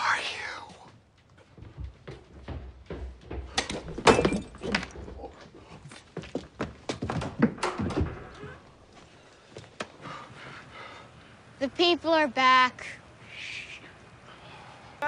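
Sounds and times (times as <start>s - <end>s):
thuds knocks and clatters: 1.4s - 8.6s.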